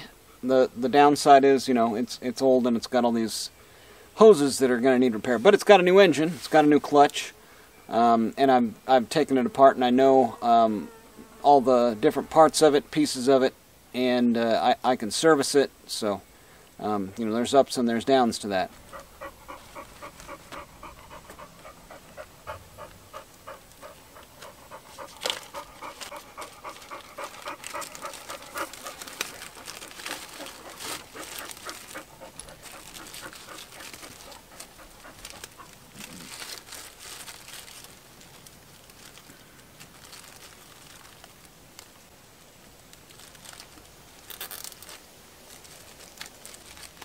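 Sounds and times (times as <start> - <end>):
rapid panting: 18.6 - 36.1
plastic bags crinkling: 25.0 - 41.9, 42.9 - 47.0.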